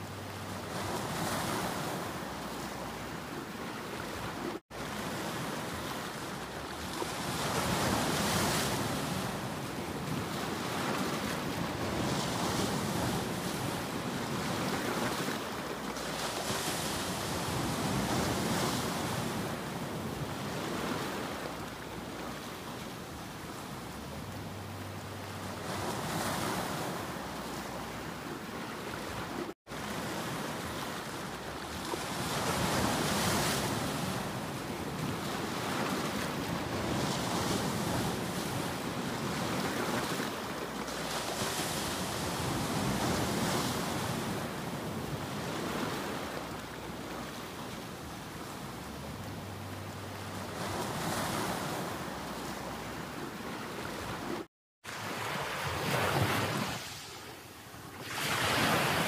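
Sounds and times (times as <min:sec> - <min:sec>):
waves breaking over rocks: 0:25.5 - 0:48.7, 0:50.5 - 0:59.0.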